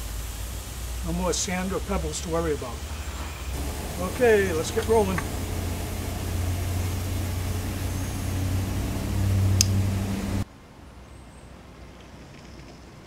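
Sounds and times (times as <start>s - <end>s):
street sweeper engine hum: 0.0s - 10.4s
faint outdoor background: 0.0s - 13.0s.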